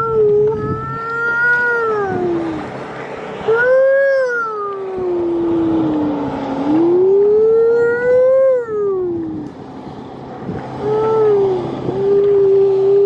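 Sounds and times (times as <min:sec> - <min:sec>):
wind noise: 0:00.0 - 0:13.0
man imitating whale call: 0:06.7 - 0:09.2, 0:10.8 - 0:13.0.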